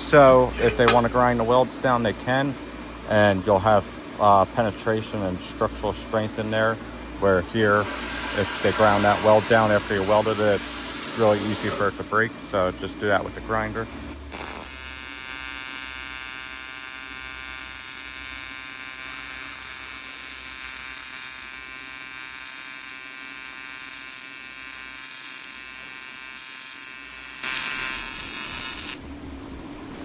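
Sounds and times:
welding arc buzzing: 7.5s - 11.9s, 14.2s - 29.3s.

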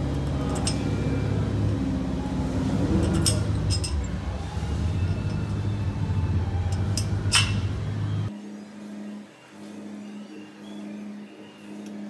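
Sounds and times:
metal housing clinking on steel tube: 0.1s - 1.2s, 2.8s - 4.3s, 6.7s - 7.8s.

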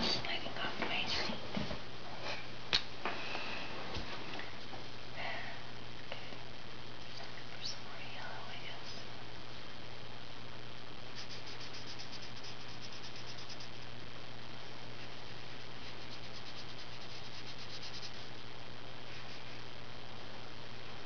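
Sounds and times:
marker scratching on paper: 11.2s - 13.8s, 15.8s - 18.3s.

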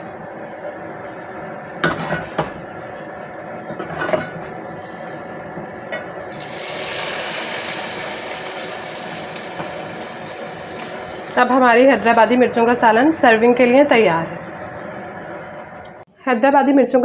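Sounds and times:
hot oil sizzling: 6.2s - 12.8s.

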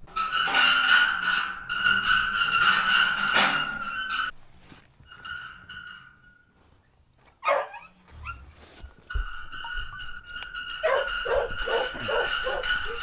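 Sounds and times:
dog barking: 7.4s - 7.9s, 10.8s - 13.0s.

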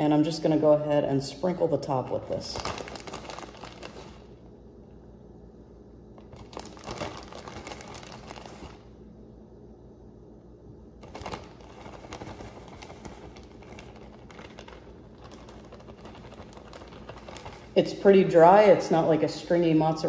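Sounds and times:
plastic bag crinkling: 1.3s - 4.5s, 6.2s - 9.0s, 11.0s - 20.0s.

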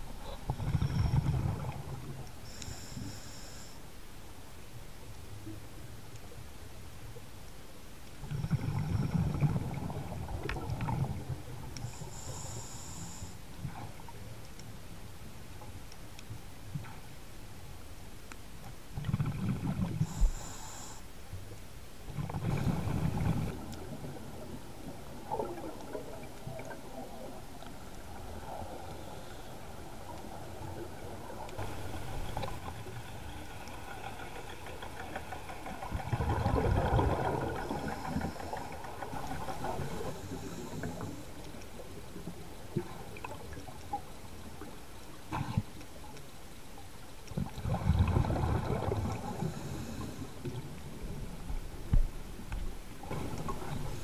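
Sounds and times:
faint bubbling and hiss: 0.0s - 54.0s
diver's exhaled bubbles underwater: 19.0s - 20.2s, 22.1s - 24.5s, 34.0s - 40.6s, 47.3s - 50.6s.

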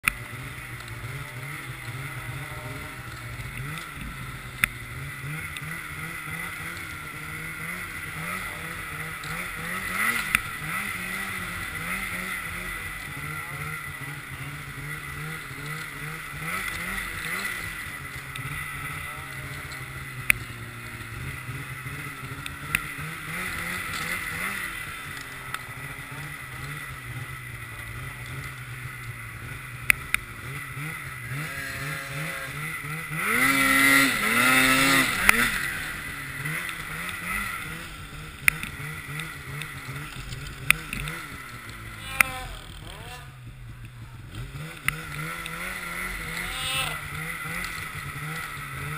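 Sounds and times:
snowmobile engine revving: 0.0s - 48.9s.

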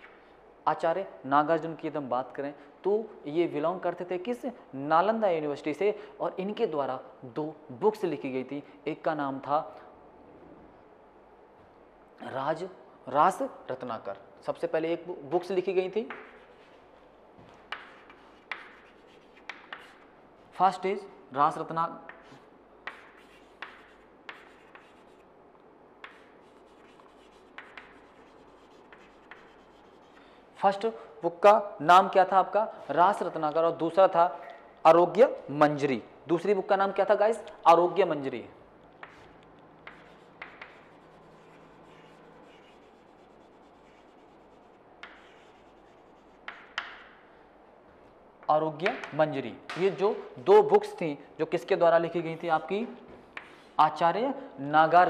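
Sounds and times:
chalk tapping on board: 16.0s - 20.1s, 22.1s - 25.2s, 26.0s - 30.3s, 39.0s - 47.2s, 48.8s - 50.0s, 53.3s - 53.6s
chalk scratching on chalkboard: 16.0s - 20.8s, 22.1s - 25.3s, 26.0s - 30.8s, 39.0s - 47.2s, 53.4s - 53.8s.

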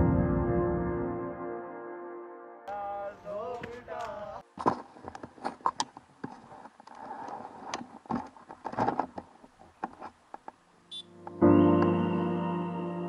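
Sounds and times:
riding gear rustling and clicking: 3.4s - 10.6s.

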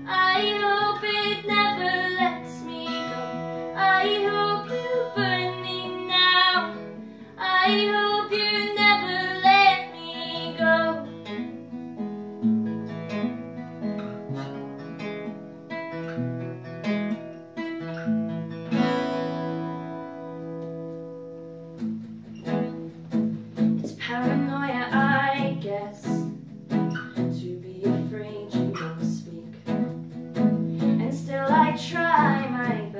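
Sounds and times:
woman singing: 0.0s - 11.2s, 23.8s - 26.4s, 27.0s - 29.9s, 30.8s - 32.9s
acoustic guitar: 0.0s - 32.9s.

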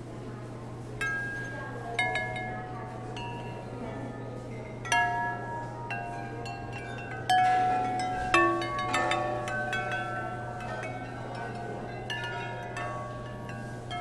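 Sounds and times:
porcelain bowls clinking and ringing: 1.0s - 14.0s.

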